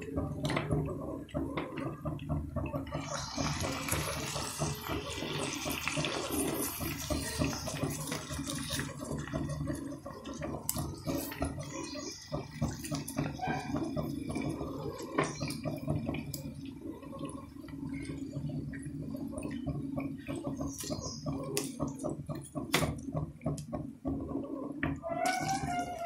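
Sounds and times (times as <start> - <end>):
oil popping and crackling: 0.0 - 26.0
chicken sizzling in oil: 2.9 - 18.3.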